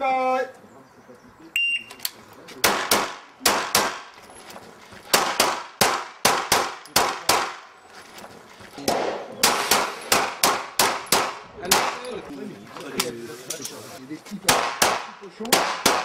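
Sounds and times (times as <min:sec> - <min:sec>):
pistol shots: 0:02.6 - 0:04.1, 0:05.1 - 0:07.7, 0:08.8 - 0:12.1, 0:14.5 - 0:16.0.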